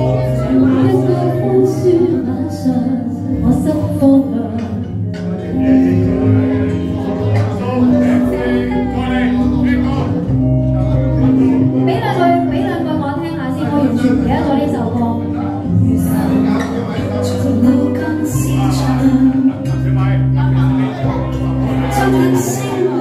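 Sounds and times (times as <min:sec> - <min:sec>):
woman singing: 0:00.0 - 0:05.8, 0:11.8 - 0:20.1, 0:21.7 - 0:23.0
pop song backing track: 0:00.0 - 0:23.0.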